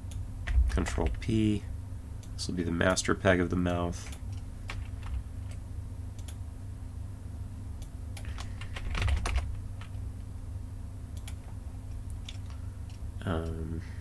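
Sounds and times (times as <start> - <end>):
steady low hum: 0.0 - 14.0
computer keyboard typing: 4.1 - 5.6, 8.2 - 10.0, 11.2 - 13.0.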